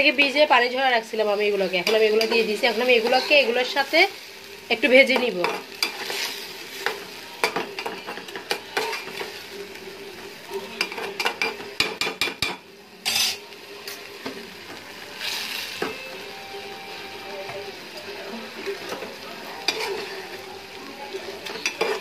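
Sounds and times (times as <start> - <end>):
food sizzling: 0.0 - 22.0
metal spatula scraping a pot: 5.4 - 6.9, 8.4 - 9.3, 13.0 - 13.4, 19.6 - 20.3, 21.4 - 22.0.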